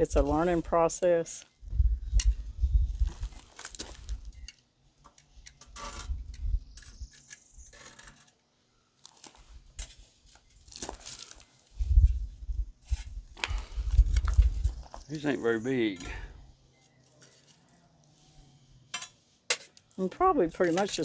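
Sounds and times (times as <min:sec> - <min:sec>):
metal tongs scraping charcoal: 0:17.0 - 0:18.3, 0:18.9 - 0:21.0.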